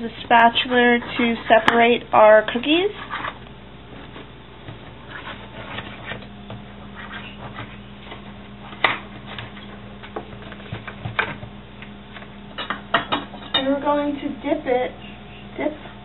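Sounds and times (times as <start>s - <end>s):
steady low hum: 0.0s - 16.0s
metal spatula scraping baking pan: 0.4s - 1.7s.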